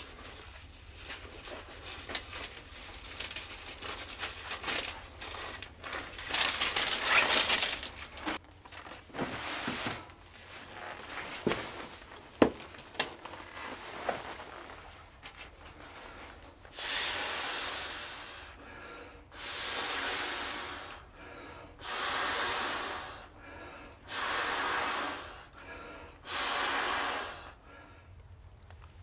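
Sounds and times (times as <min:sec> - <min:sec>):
person blowing forceful breaths: 0:01.1 - 0:08.4, 0:15.8 - 0:28.2.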